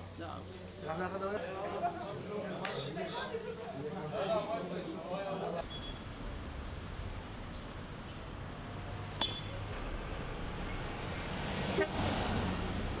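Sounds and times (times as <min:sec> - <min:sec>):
low rumble of traffic: 0:00.0 - 0:13.0
vehicle passing close by: 0:08.9 - 0:13.0.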